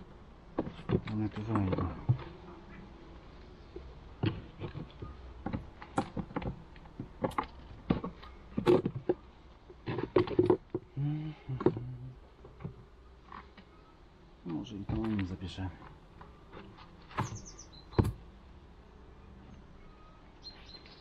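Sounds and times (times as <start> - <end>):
wooden knocks and scrapes: 3.8 - 10.9, 15.8 - 18.2.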